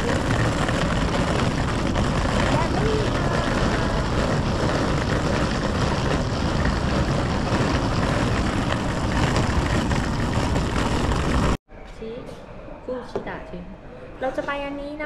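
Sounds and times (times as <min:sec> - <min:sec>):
street traffic: 0:00.0 - 0:11.6
suitcase wheels rolling on paving: 0:00.0 - 0:11.6.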